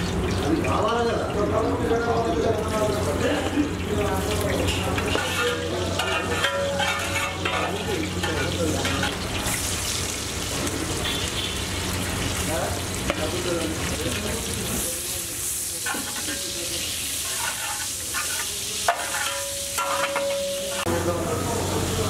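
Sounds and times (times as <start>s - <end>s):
onions sizzling in hot oil: 0.0s - 22.0s
spatula scraping metal pot: 4.7s - 9.2s, 15.9s - 20.9s.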